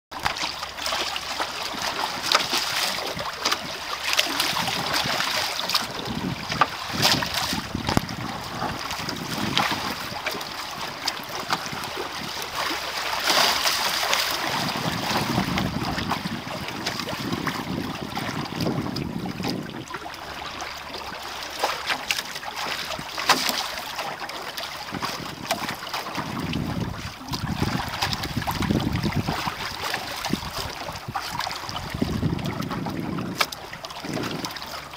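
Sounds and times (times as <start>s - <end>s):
water rushing along hulls: 0.1s - 34.9s
wind buffeting microphone: 3.0s - 12.7s, 14.3s - 20.3s, 24.9s - 34.9s.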